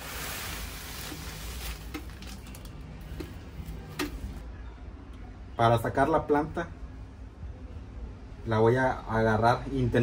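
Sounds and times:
potting mix rustling: 0.0s - 4.4s.

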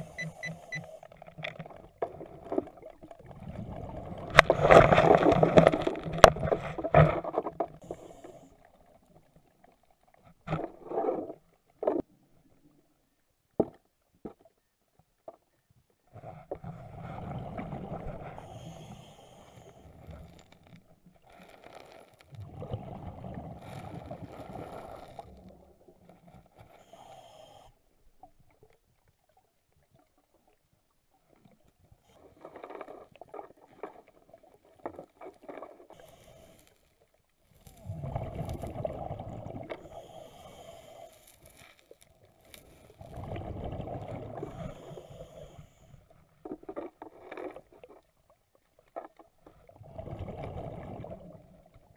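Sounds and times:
diver exhaling bubbles: 22.4s - 25.6s, 37.8s - 41.0s, 42.8s - 45.6s, 49.7s - 51.7s.

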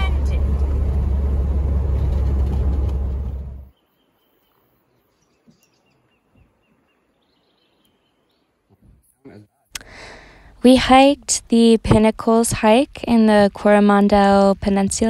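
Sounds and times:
road and engine rumble: 0.0s - 3.8s, 9.8s - 15.0s.

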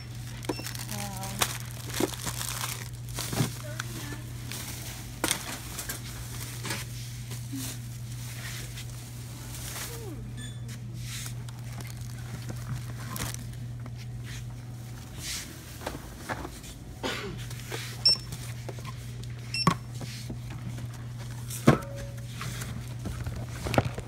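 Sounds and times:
barcode scanner beeps: 0.0s - 0.9s, 18.0s - 18.3s
steady low hum: 0.0s - 24.0s.

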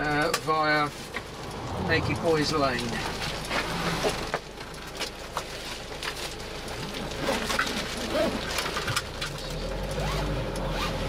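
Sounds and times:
engine drone inside a minibus: 0.0s - 11.0s
road noise: 0.0s - 11.0s.

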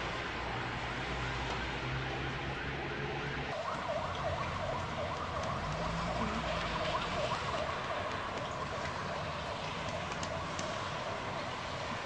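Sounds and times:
warbling electronic siren: 3.5s - 8.8s.

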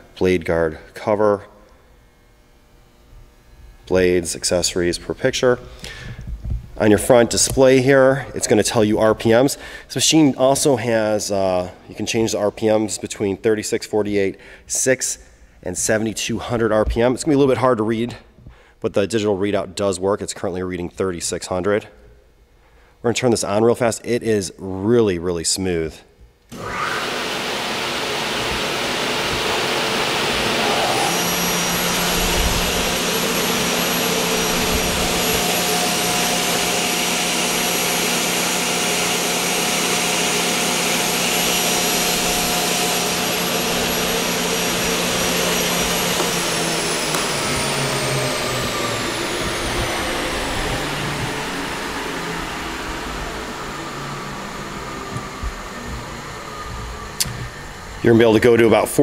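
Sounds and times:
high steady motor whine: 26.5s - 59.0s
saw motor humming: 26.5s - 59.0s.

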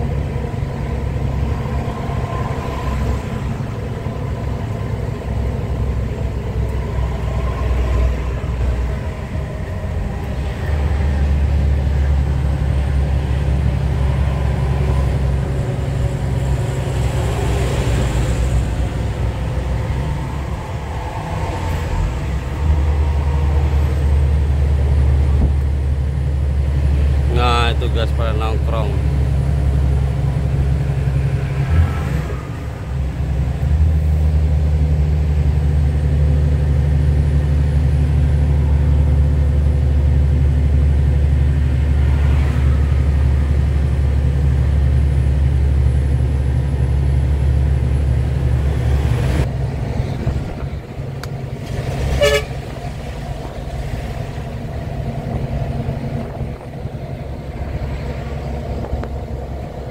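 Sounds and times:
truck diesel engine drone: 0.0s - 59.9s
short horn toot: 52.1s - 52.6s.

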